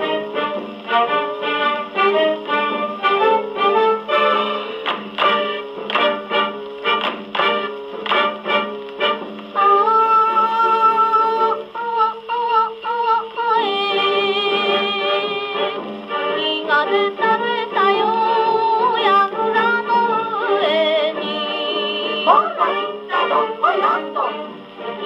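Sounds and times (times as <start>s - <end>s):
gramophone playing boogie record: 0.0s - 25.0s
person singing over a band: 16.5s - 24.6s.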